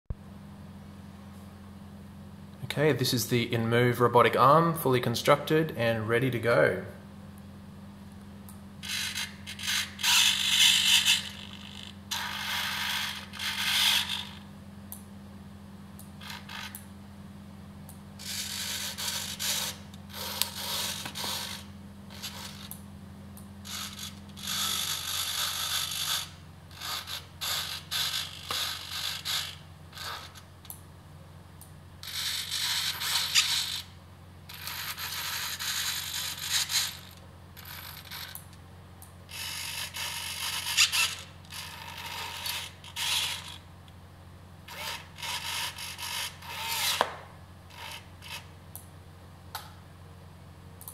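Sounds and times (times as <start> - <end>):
steady low hum: 0.1 - 50.9
servo motors whirring: 8.8 - 14.4, 18.2 - 22.7, 23.7 - 30.4, 32.0 - 33.9, 39.3 - 43.5, 44.7 - 47.1.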